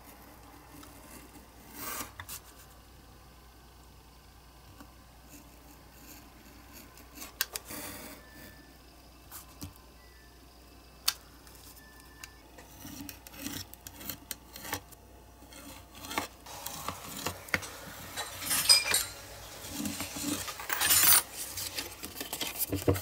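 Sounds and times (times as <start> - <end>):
knife scraping along ruler: 0.7 - 2.4, 5.3 - 8.4, 12.6 - 22.6.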